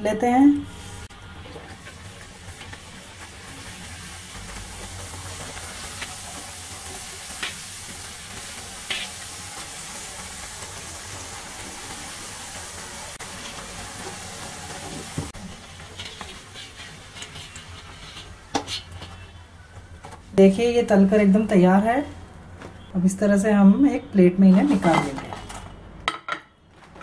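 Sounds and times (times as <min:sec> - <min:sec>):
food sizzling in hot oil: 0:00.7 - 0:19.0.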